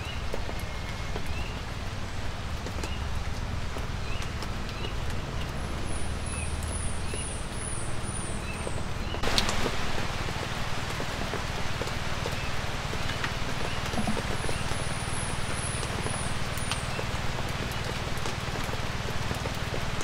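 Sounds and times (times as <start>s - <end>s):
light rain hissing: 0.0s - 20.0s
raindrops ticking: 0.0s - 20.0s.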